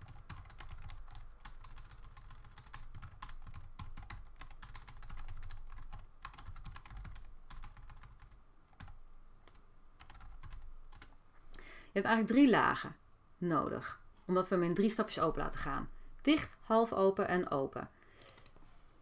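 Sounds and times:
computer keyboard typing: 0:00.0 - 0:11.1, 0:18.2 - 0:18.6.

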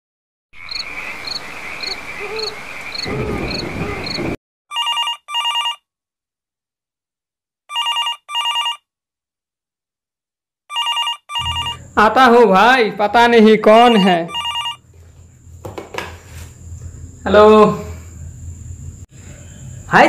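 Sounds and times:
telephone ringing electronic trill: 0:10.7 - 0:12.1, 0:13.7 - 0:14.8.

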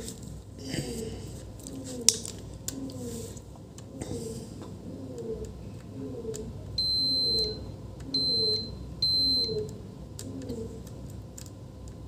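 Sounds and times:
continuity tester beeping: 0:06.8 - 0:09.7.

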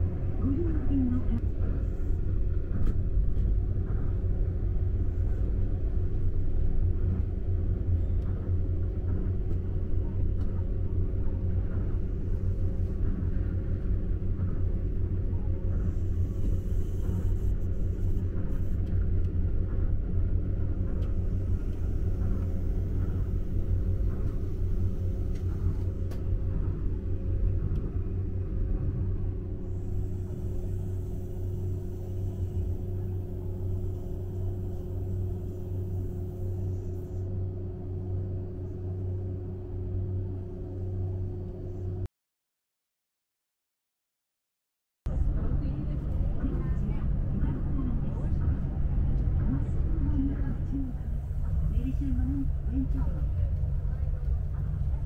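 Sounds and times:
steady hum: 0:00.0 - 0:42.1, 0:45.1 - 0:55.0
train running low rumble: 0:00.0 - 0:42.1, 0:45.1 - 0:55.0.

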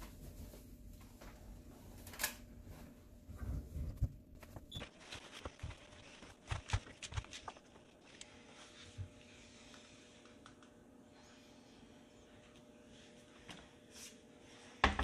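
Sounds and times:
fabric rustling: 0:02.6 - 0:09.0.

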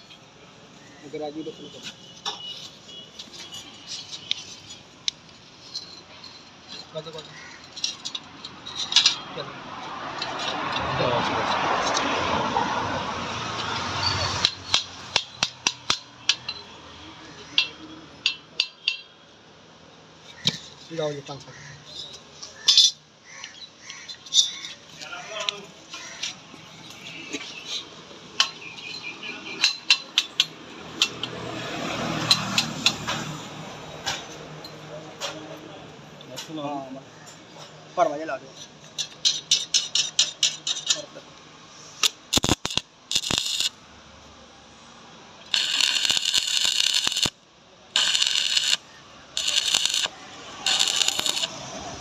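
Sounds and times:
steel parts clinking: 0:01.8 - 0:09.3, 0:14.0 - 0:16.8, 0:21.9 - 0:31.4, 0:38.6 - 0:41.2, 0:42.0 - 0:43.8, 0:45.4 - 0:47.4, 0:48.0 - 0:51.6
welding arc crackling: 0:42.0 - 0:43.8, 0:45.4 - 0:47.4, 0:48.0 - 0:52.0.

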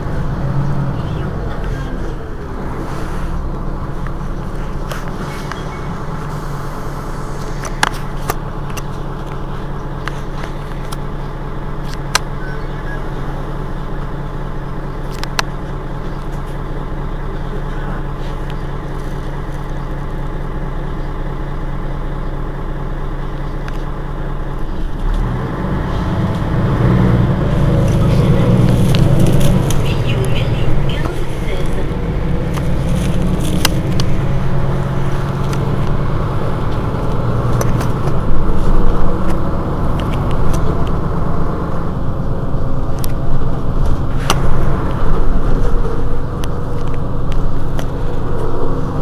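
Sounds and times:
bus engine idling: 0:00.0 - 0:49.0.

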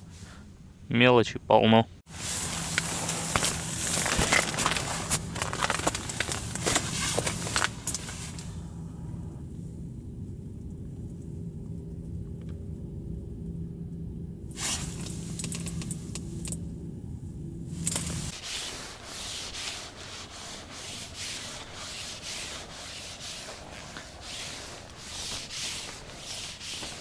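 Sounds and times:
low steady hum: 0:00.0 - 0:27.0
rubbing and scraping strokes: 0:02.1 - 0:08.6, 0:14.6 - 0:16.0, 0:17.8 - 0:27.0.

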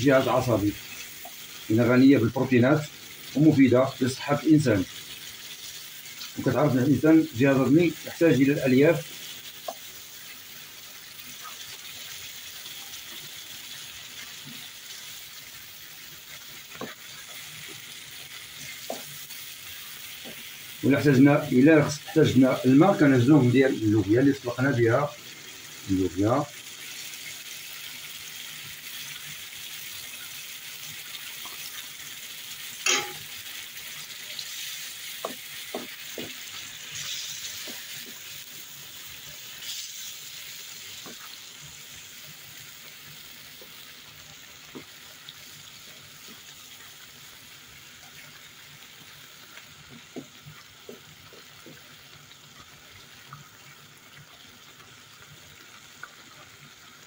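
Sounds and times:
sauce sizzling in a frying pan: 0:00.0 - 0:57.0
wooden spoon scraping a pan: 0:34.4 - 0:38.3.

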